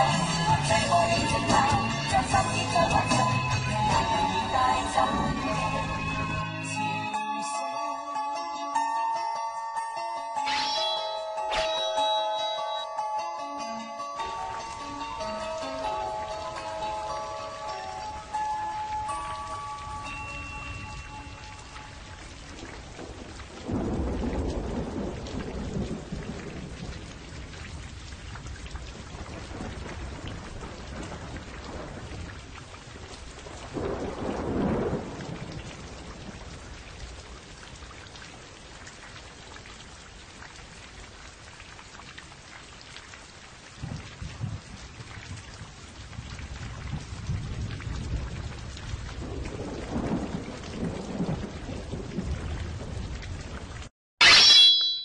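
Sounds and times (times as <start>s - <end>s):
steady rain: 0.0s - 7.3s, 14.1s - 53.9s
rolling thunder: 20.8s - 38.6s, 43.8s - 53.9s.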